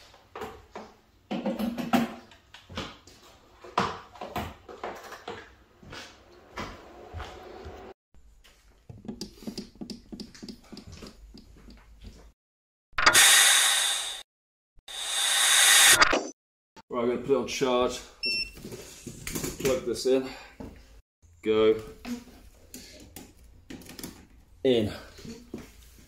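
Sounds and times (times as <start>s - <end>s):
hissing whoosh effect: 14.9s - 16.0s
clicks and knocks of handling things: 22.7s - 24.4s.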